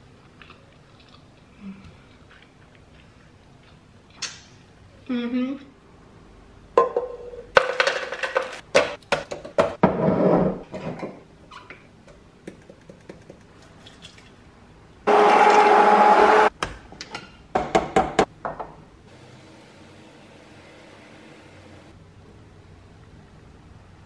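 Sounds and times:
immersion blender whirring: 15.1s - 16.5s.

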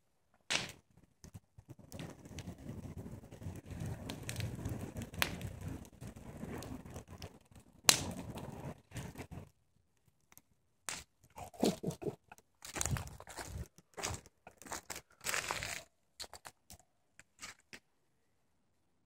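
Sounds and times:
bonfire crackling and popping: 0.3s - 17.8s
low rumble of flame: 0.8s - 9.6s, 11.3s - 15.0s.

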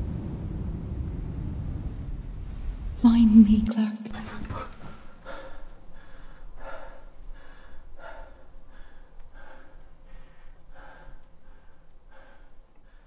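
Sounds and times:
man gasping breaths: 4.2s - 13.0s.

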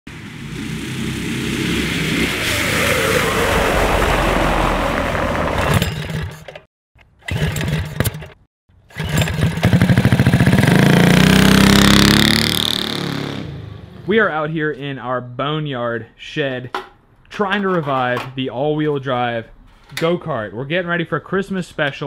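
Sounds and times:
engine firing with fast pulses: 7.2s - 14.0s
go-kart engines revving: 8.9s - 14.1s.

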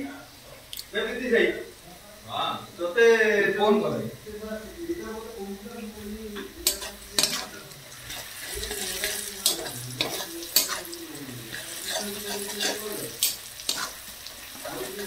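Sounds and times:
onions sizzling in oil: 0.0s - 15.0s
spatula scraping and knocking pan: 6.4s - 14.1s.

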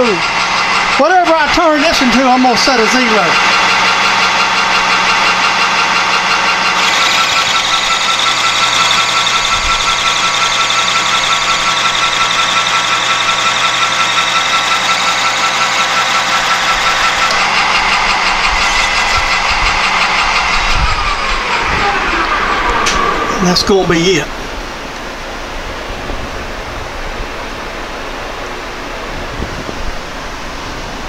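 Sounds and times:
metal lathe whining: 0.0s - 25.0s
cutting tool whine and hiss: 6.7s - 23.5s.

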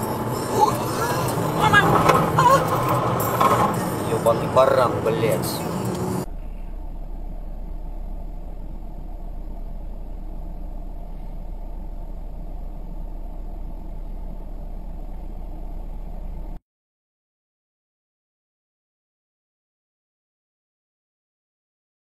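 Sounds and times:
car engine and road noise: 0.0s - 16.6s.

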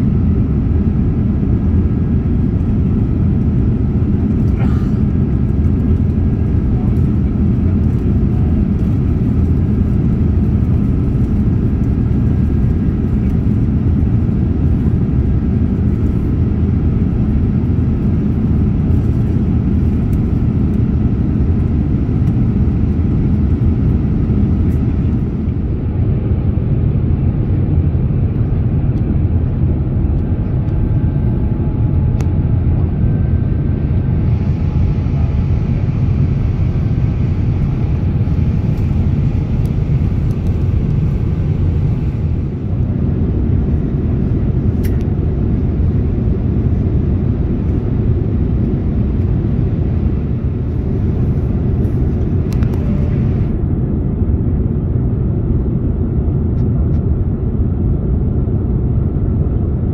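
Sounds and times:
jet engines low roar in cabin: 0.0s - 59.9s
rushing airflow: 29.4s - 54.2s.

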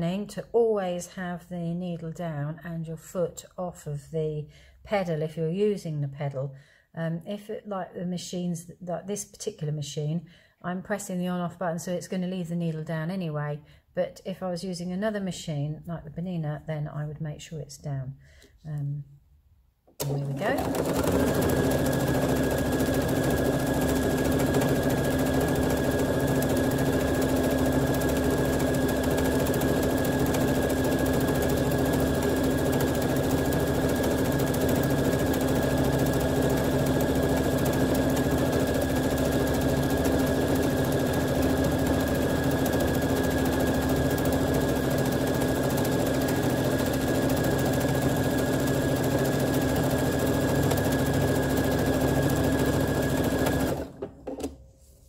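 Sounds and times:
sewing machine running: 20.0s - 54.1s.

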